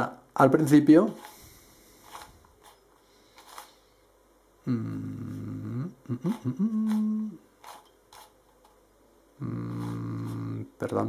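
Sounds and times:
man humming: 4.6 - 7.5, 9.4 - 10.8
puzzle cube clicking: 6.2 - 8.3.

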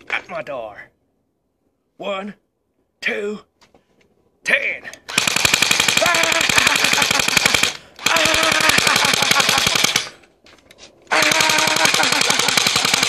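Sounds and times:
submachine gun automatic bursts: 5.1 - 10.2, 11.1 - 13.0
person yelling: 6.0 - 6.7, 8.0 - 9.1, 11.1 - 12.3.

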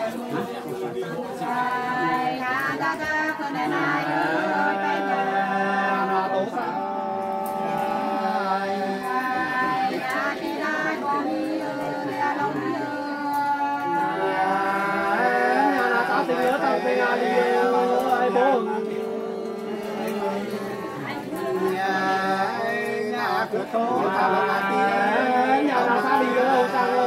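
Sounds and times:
women singing unaccompanied: 0.0 - 27.0.

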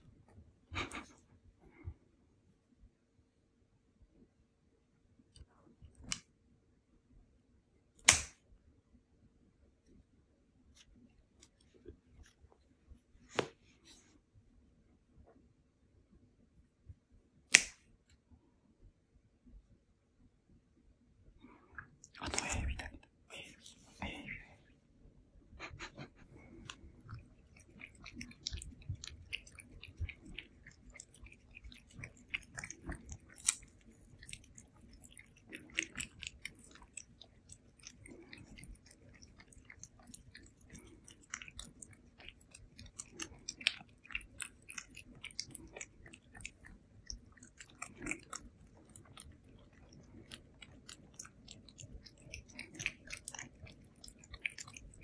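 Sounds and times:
cats licking and smacking: 0.8 - 2.0, 21.4 - 24.6, 25.6 - 55.0.

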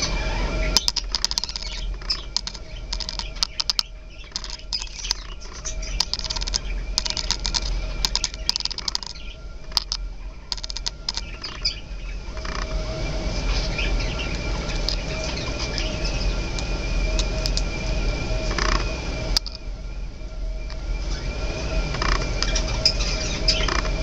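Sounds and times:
budgie beaks clicking: 0.8 - 11.6.

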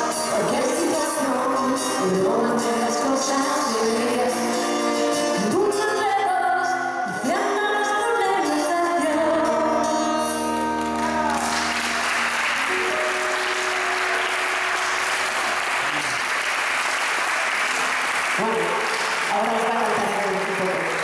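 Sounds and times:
acoustic duo singing: 0.0 - 11.6
audience applause: 10.7 - 21.0.

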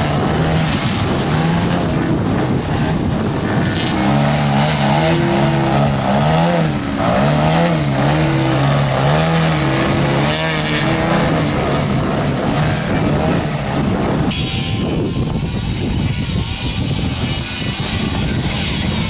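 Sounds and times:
model plane motor and propeller: 0.0 - 19.0.

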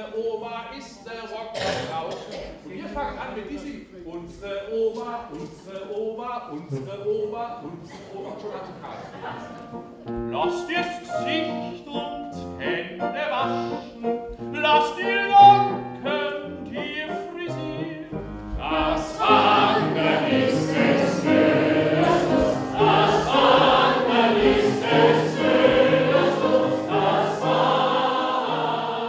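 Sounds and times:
piano accompaniment: 9.2 - 29.0
voices singing: 14.6 - 29.0
audience singing along: 18.6 - 29.0.

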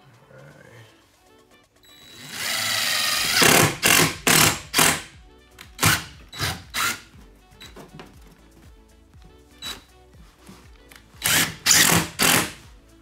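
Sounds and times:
faint background music: 0.0 - 13.0
power drill drilling into wood: 2.0 - 5.1, 5.8 - 7.0, 11.2 - 12.6.

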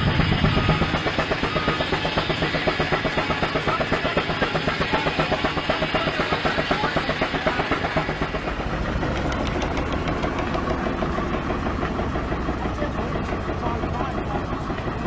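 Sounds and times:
steam engine exhaust chuffing: 0.0 - 15.0.

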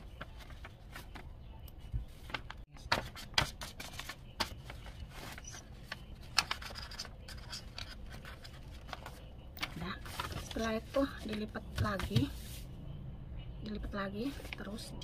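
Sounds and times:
paper rustling and crinkling: 0.0 - 1.3, 2.0 - 12.6.

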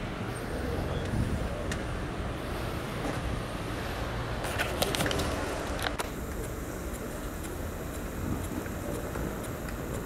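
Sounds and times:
road traffic rumble: 0.0 - 10.0
sharp clicks: 4.7 - 10.0.

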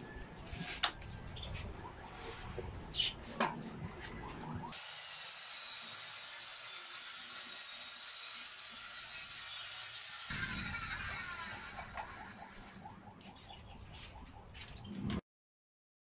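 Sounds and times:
circular saw cutting plywood: 4.6 - 12.8.

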